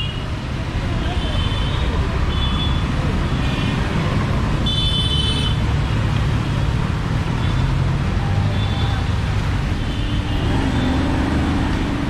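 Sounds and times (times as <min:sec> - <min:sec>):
city street traffic: 0:00.0 - 0:12.0.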